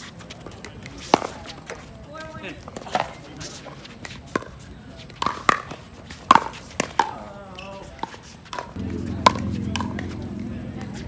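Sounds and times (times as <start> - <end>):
paddles striking a ball: 4.0 - 7.2, 7.9 - 11.0.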